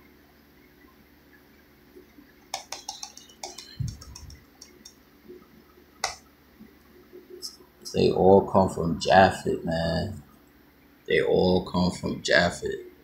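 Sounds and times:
computer mouse clicks: 2.5s - 5.0s.

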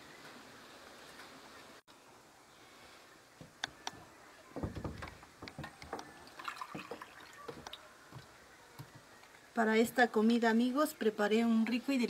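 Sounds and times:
coffee pouring into a cup: 6.3s - 7.4s.

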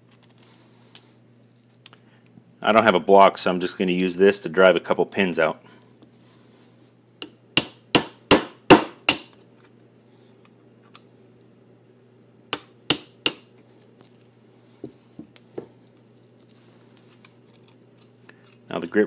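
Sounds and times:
hammer tapping metal punch: 7.2s - 9.5s, 12.5s - 13.6s.

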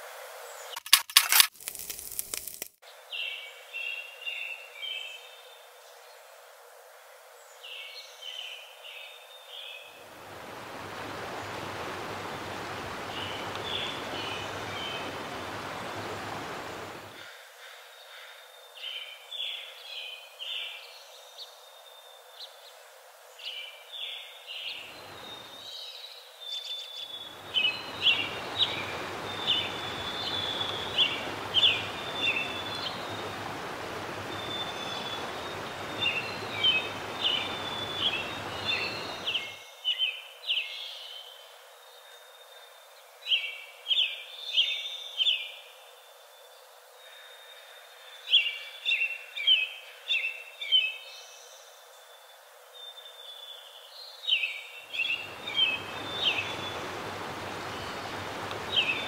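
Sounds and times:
steady hiss: 0.0s - 59.0s
small birds chirping: 9.0s - 17.3s, 23.5s - 41.4s, 52.9s - 59.0s.

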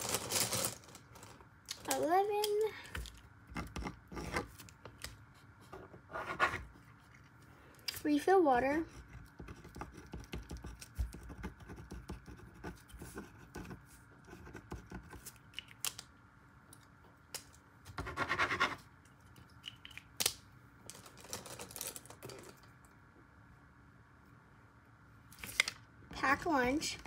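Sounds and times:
marker scratching on paper: 8.9s - 15.2s.

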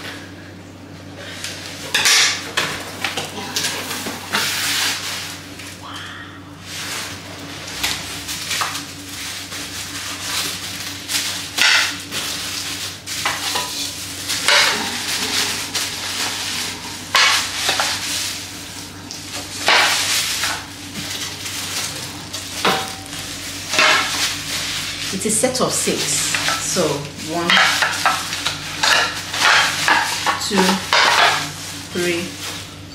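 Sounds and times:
plastic wrapping crinkling: 6.6s - 32.9s.

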